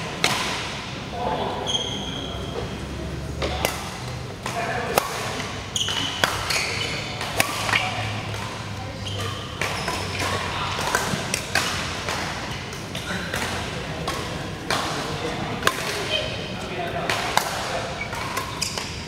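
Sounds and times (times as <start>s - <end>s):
murmur of voices: 0.0s - 19.0s
racket hitting shuttlecock: 0.2s - 0.8s, 3.4s - 8.6s, 9.2s - 16.1s
shoe squeaks on court: 1.6s - 2.6s, 5.8s - 7.2s, 9.0s - 10.2s.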